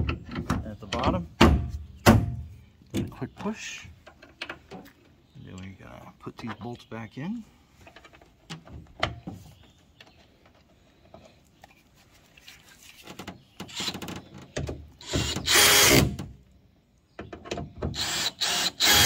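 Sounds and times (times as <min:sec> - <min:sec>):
cordless drill driving bolts: 0:13.7 - 0:14.1, 0:15.0 - 0:16.3, 0:17.9 - 0:19.0.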